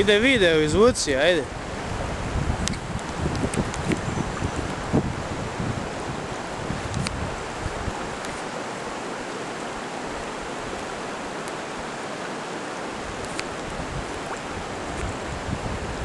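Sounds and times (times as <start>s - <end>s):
flowing river rushing: 0.0s - 16.0s
wind gusts on microphone: 0.0s - 16.0s.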